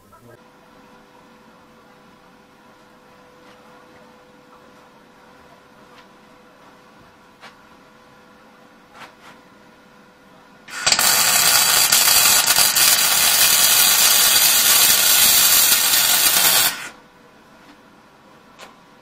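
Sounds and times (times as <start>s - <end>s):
welding arc burning: 10.7s - 17.0s.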